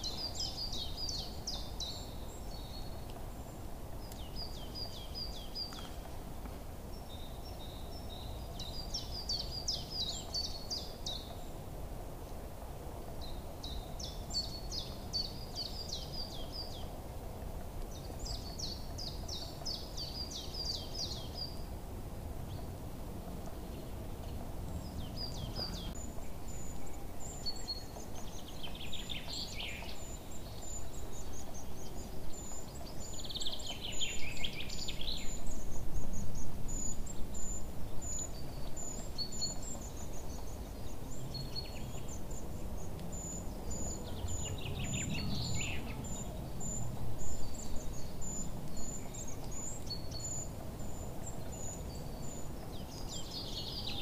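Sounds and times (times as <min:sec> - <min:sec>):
low background noise: 0:00.0 - 0:54.0
birds chirping: 0:23.5 - 0:54.0
falling bird calls: 0:23.5 - 0:54.0.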